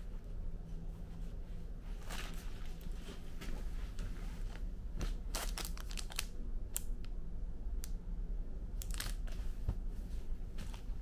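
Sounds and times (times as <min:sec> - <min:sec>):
steady low hum: 0:00.0 - 0:11.0
plastic wrapping crinkling: 0:05.3 - 0:06.3, 0:08.8 - 0:09.3.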